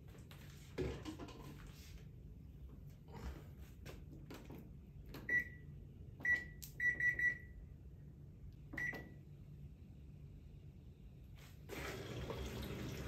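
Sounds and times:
washing machine beeps: 5.2s - 7.7s, 8.7s - 9.2s.

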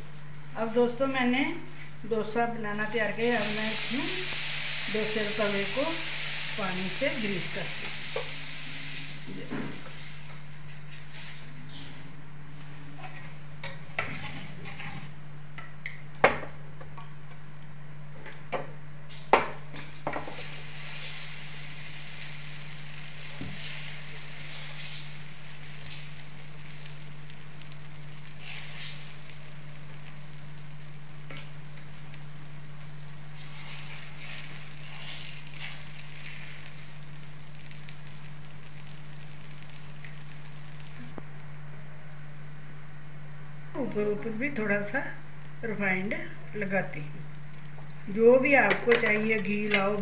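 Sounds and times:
steady low hum: 0.0s - 50.0s
batter sizzling on griddle: 2.8s - 11.4s, 19.1s - 41.1s.

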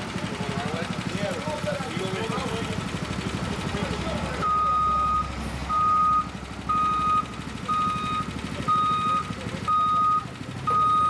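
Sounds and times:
diesel engine rumble: 0.0s - 11.0s
reversing alarm beeping: 4.4s - 11.0s.

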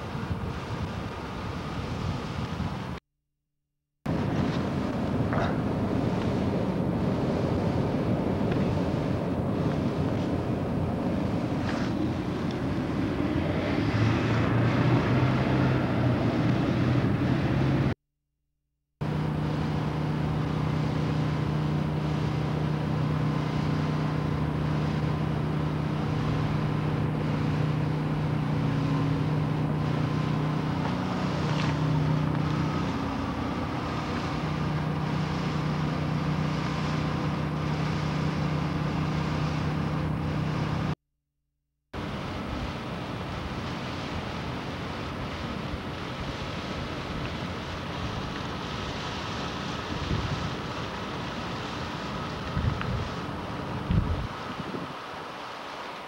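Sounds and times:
road and air noise: 0.0s - 3.0s, 4.0s - 18.0s, 19.0s - 41.0s, 42.0s - 56.0s
vehicle engine humming: 4.1s - 18.0s, 19.0s - 41.0s.

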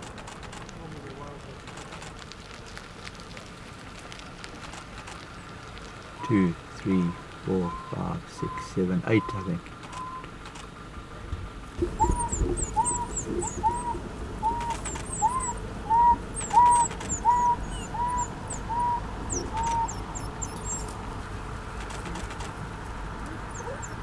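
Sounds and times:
bird hooting: 6.2s - 10.3s, 11.8s - 21.0s, 23.2s - 24.0s
thin high chirps: 11.8s - 21.0s.

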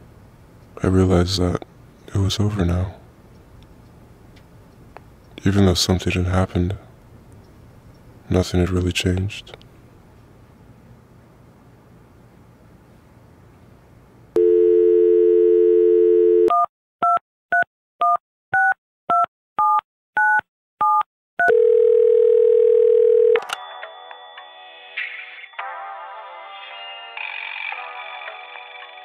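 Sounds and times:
telephone dial tone: 14.4s - 16.7s, 20.8s - 23.8s
touch-tone dialling beeps: 14.4s - 23.5s
music: 23.5s - 29.0s.

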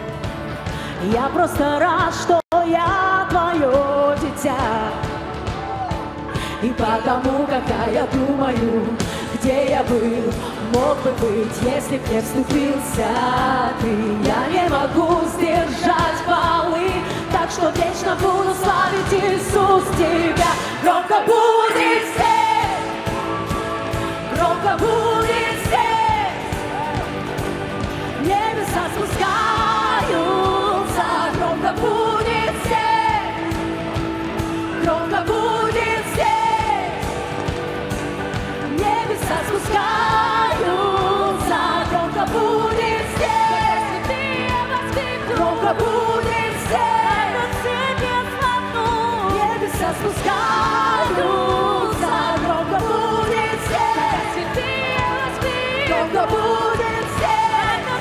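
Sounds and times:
band accompaniment: 0.0s - 58.0s
women singing worship song: 0.8s - 5.2s, 6.4s - 37.6s, 38.3s - 58.0s.

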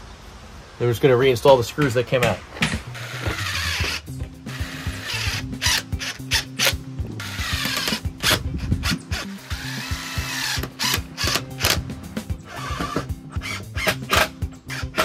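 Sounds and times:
background music: 2.8s - 15.0s
cordless drill driving screws: 2.9s - 11.8s, 12.5s - 15.0s.

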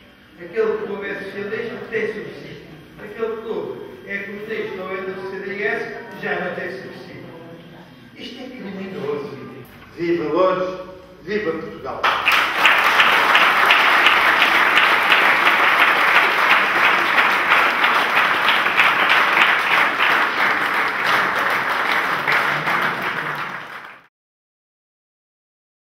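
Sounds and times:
audience applauding: 12.0s - 24.1s.

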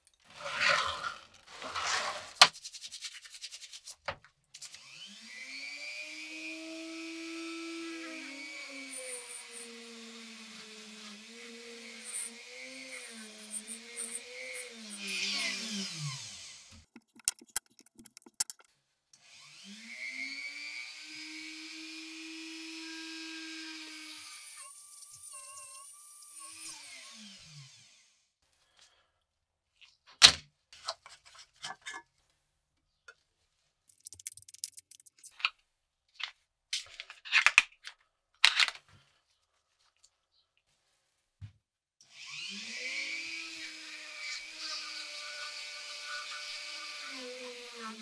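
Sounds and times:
small electric power tool spinning: 4.6s - 28.2s, 33.9s - 35.3s, 42.1s - 48.0s
clicks and taps: 16.8s - 18.7s, 33.9s - 35.5s.

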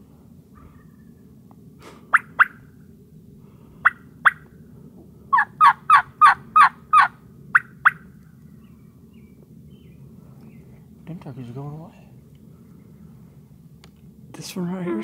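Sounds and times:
turkey yelping: 2.1s - 2.7s, 3.8s - 4.5s, 5.3s - 8.1s.

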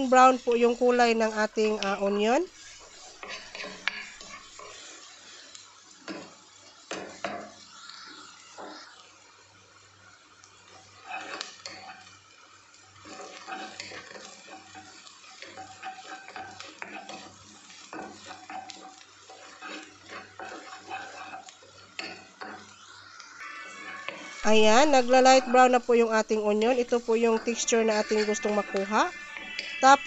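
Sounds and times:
wooden spatula scraping pot: 0.0s - 4.9s, 11.0s - 12.1s, 13.0s - 22.7s
onions sizzling in oil: 0.0s - 30.0s.

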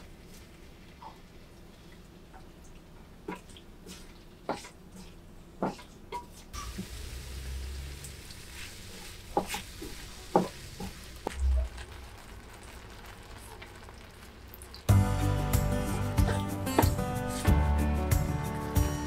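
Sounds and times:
vegetables sizzling in a frying pan: 6.6s - 14.9s.

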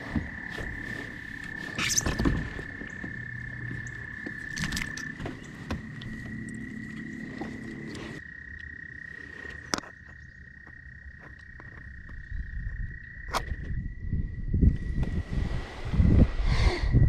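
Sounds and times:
frog trilling: 1.4s - 10.4s
low rumble: 12.3s - 17.0s.

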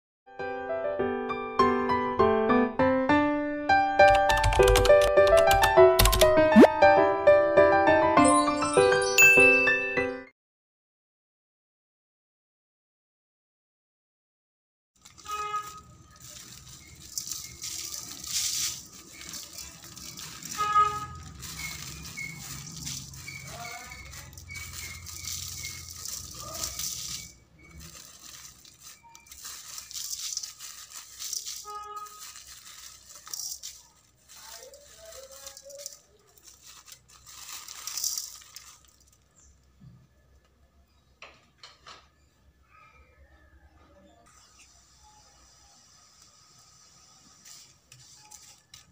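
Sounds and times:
shaker-like rattles: 15.0s - 39.6s, 47.3s - 48.9s.

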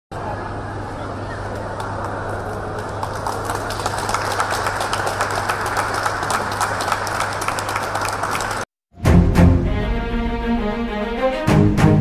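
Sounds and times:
crowd clapping: 1.4s - 8.7s.

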